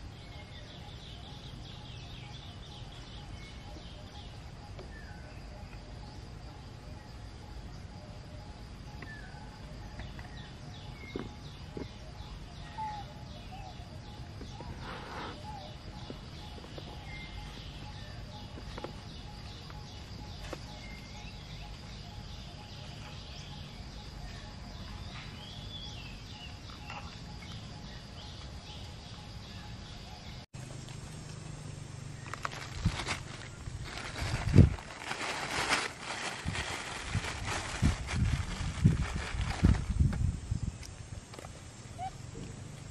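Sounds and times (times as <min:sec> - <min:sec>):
bird chirps: 0:00.0 - 0:30.5
high insect drone: 0:00.0 - 0:42.9.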